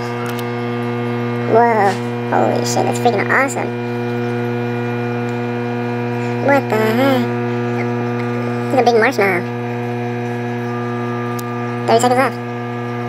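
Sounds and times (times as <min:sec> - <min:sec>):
microwave oven hum: 0:00.0 - 0:13.0
person speaking: 0:01.4 - 0:03.9, 0:06.1 - 0:10.5, 0:11.7 - 0:12.5.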